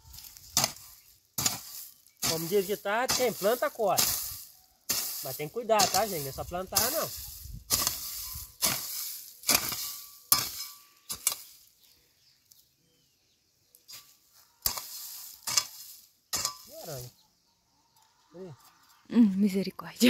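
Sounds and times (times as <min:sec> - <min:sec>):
hoe chopping dry soil: 0:00.0 - 0:11.7, 0:13.9 - 0:17.1.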